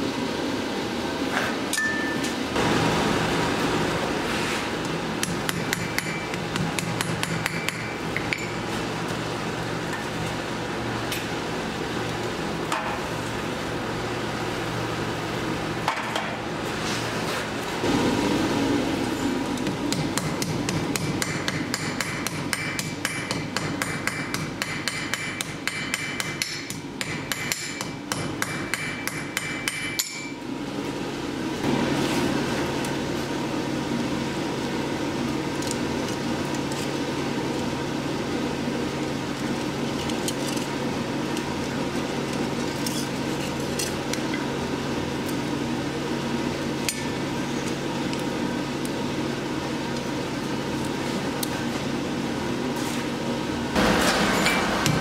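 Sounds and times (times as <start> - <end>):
hammer striking steel on anvil: 1.7 - 2.3, 5.2 - 8.6, 19.6 - 30.4, 53.8 - 55.0.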